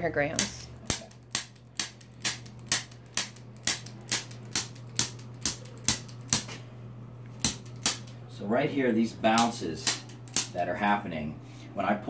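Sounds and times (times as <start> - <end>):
steady low hum: 0.0 - 12.0
adjusting instrument clicking: 0.3 - 6.6, 9.3 - 10.6.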